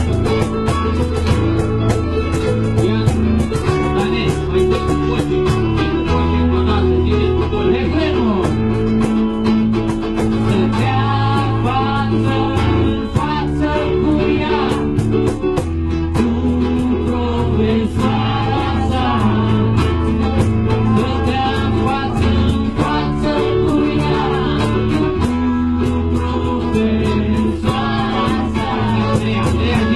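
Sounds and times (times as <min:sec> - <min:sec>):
acoustic guitar: 0:00.0 - 0:29.9
person singing: 0:10.4 - 0:15.0, 0:16.1 - 0:29.9.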